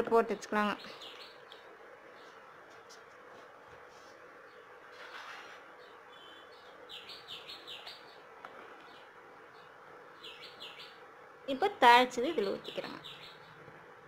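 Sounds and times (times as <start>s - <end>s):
small bird chirping: 0.5s - 2.4s, 4.4s - 13.7s.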